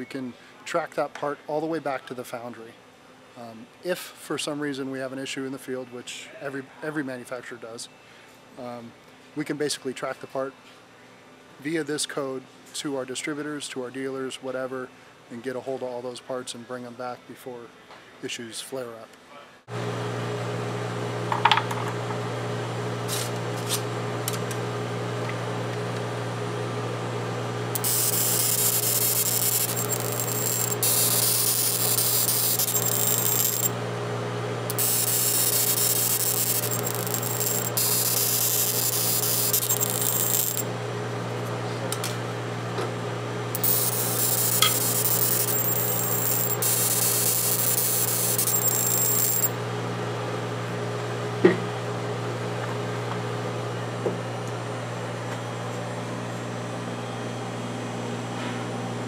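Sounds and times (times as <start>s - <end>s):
steady machine hum: 23.9s - 52.4s
laser marking hiss with whistle: 27.8s - 33.6s, 34.7s - 40.6s, 43.6s - 49.4s.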